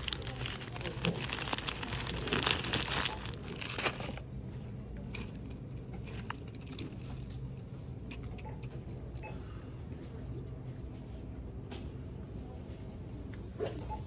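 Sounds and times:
plastic bag crinkling: 0:00.0 - 0:04.3, 0:05.0 - 0:08.4.

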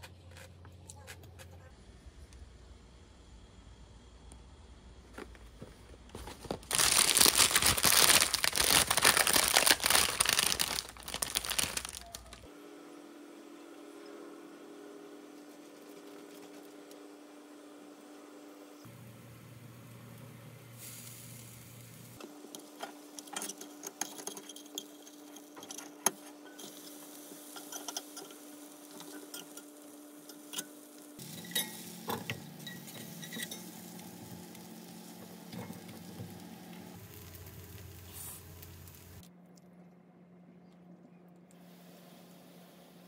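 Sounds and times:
food sizzling in a pan: 0:20.8 - 0:23.8, 0:26.2 - 0:39.2.

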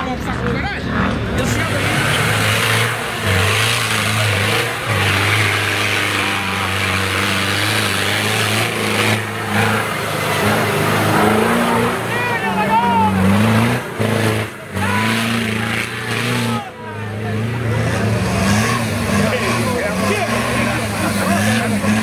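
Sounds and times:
off-road vehicle engine revving: 0:00.0 - 0:22.0
tyres spinning in mud: 0:01.1 - 0:16.8.

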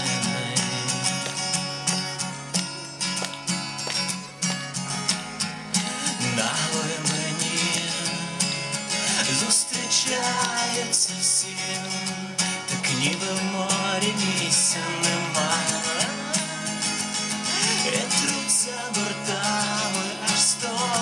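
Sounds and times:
man singing: 0:00.0 - 0:01.6, 0:06.0 - 0:21.0
acoustic guitar strumming: 0:00.0 - 0:21.0.

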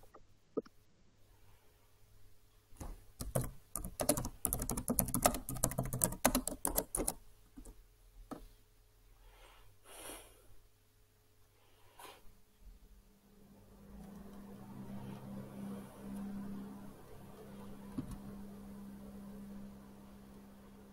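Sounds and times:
rapid typing on keyboard: 0:02.8 - 0:07.8.

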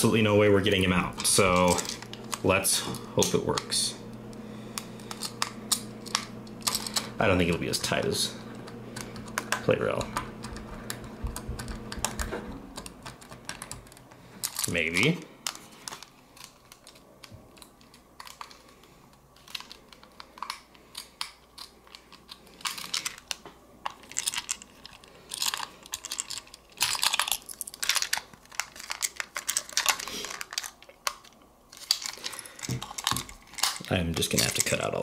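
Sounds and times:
plastic toy being handled: 0:12.1 - 0:34.9.

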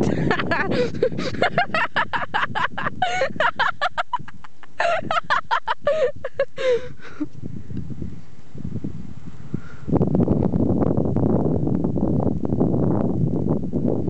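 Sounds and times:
person laughing hard: 0:00.0 - 0:07.3.

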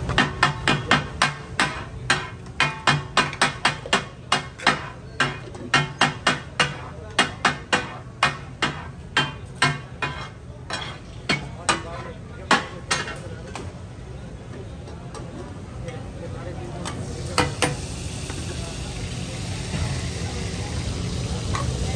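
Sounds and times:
metal blades clanging on iron griddle: 0:00.2 - 0:13.3.

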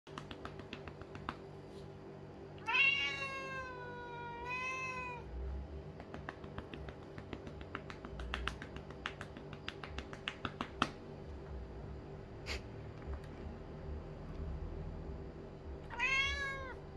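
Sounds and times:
hand patting cat: 0:00.1 - 0:01.9, 0:05.9 - 0:11.5
cat meowing: 0:02.6 - 0:05.3, 0:15.9 - 0:16.8.

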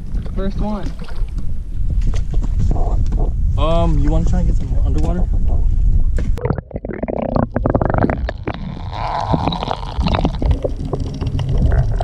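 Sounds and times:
underwater gurgling and churning: 0:05.3 - 0:12.0.

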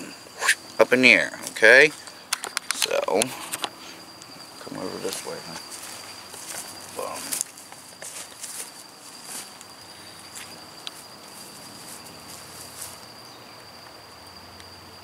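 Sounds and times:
crickets trilling: 0:00.0 - 0:15.0
faint footsteps on grass: 0:04.8 - 0:13.1.

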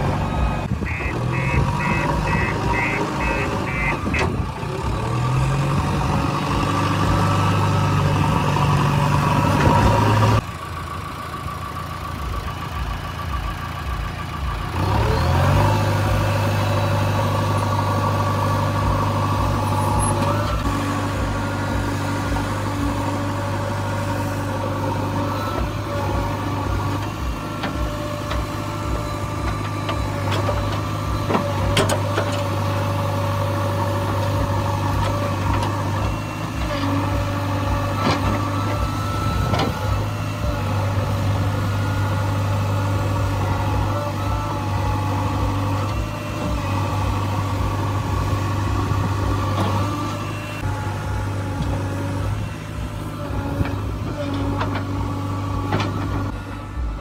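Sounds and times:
diesel engine revving: 0:00.0 - 0:57.0
reversing alarm beeps: 0:00.1 - 0:04.2, 0:37.2 - 0:43.0.

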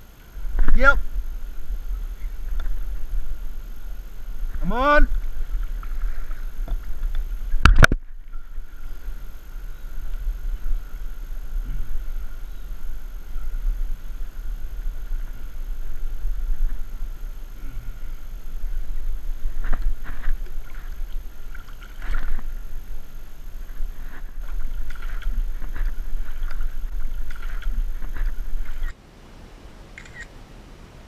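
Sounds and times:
camera handling rumble: 0:04.4 - 0:08.3, 0:18.4 - 0:28.9.

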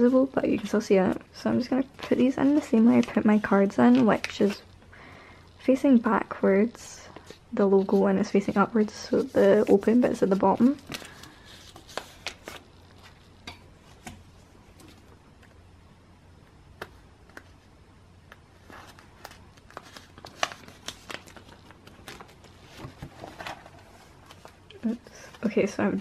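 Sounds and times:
plastic binder pages rustling: 0:07.2 - 0:13.3, 0:18.3 - 0:25.7.

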